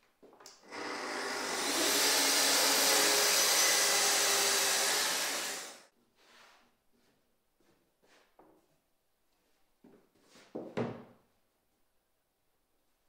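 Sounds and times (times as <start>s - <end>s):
track saw running: 0.6s - 5.9s
dust extractor running: 0.7s - 5.8s.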